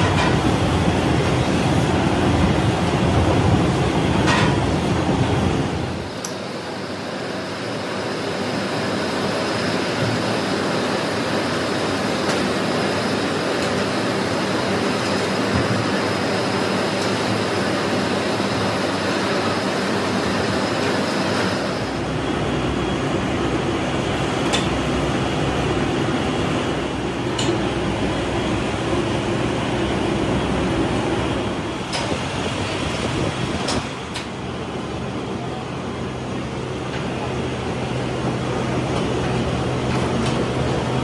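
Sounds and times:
gas burner flames rushing: 0.0s - 41.0s.

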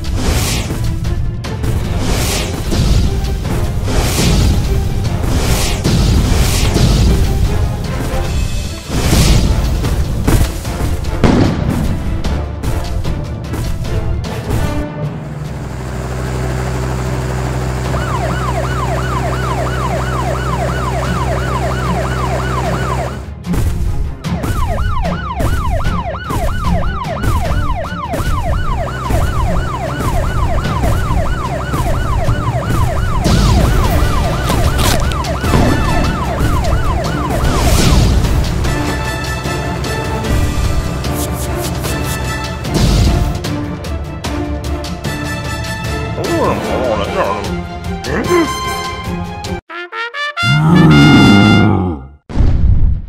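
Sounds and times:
background music: 0.0s - 16.8s, 17.9s - 52.0s
cartoon police siren yelping: 17.9s - 23.2s, 24.4s - 37.7s, 50.4s - 52.0s.

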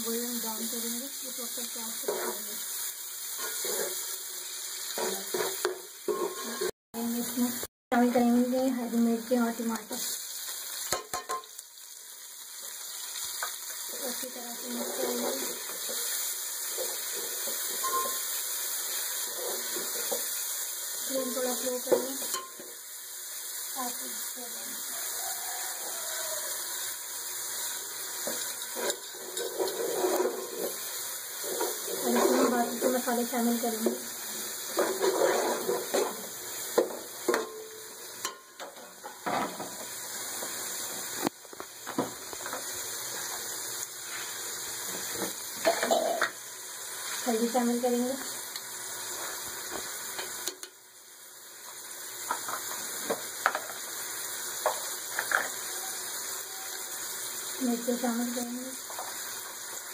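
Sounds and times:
vegetables sizzling in oil: 0.0s - 59.9s
steel ladle scraping and clinking pot: 5.0s - 6.7s, 17.4s - 18.3s, 28.4s - 30.8s
ladle scraping metal pot: 28.4s - 33.0s, 34.7s - 36.2s.

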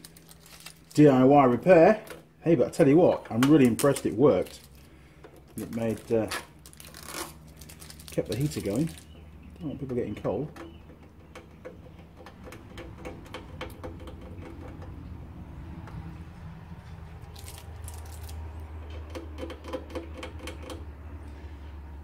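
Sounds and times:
scratchy rustle: 5.6s - 8.2s.

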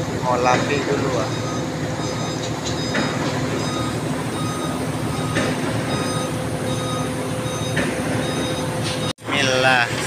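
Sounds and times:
diesel engine running: 0.0s - 10.0s
reversing alarm beeps: 1.1s - 9.1s.

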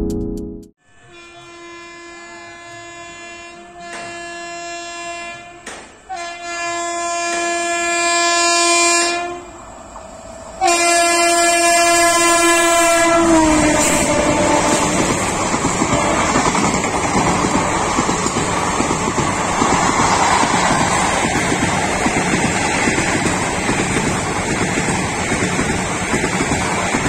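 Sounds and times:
locomotive horn blasts: 1.0s - 9.5s, 10.6s - 15.0s
train coaches rushing past: 12.8s - 27.0s.

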